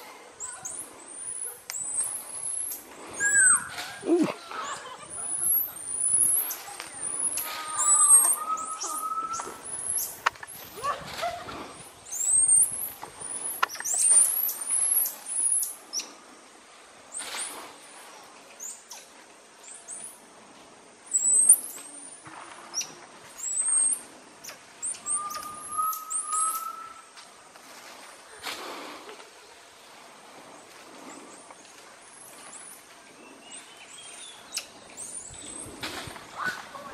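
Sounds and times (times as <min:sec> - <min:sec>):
leaves and branches rustling: 0:00.0 - 0:36.9
monkeys chirping: 0:00.4 - 0:11.4, 0:12.1 - 0:16.1, 0:22.7 - 0:27.0
drawn-out whistle: 0:03.2 - 0:04.0, 0:07.5 - 0:10.1, 0:24.9 - 0:27.1.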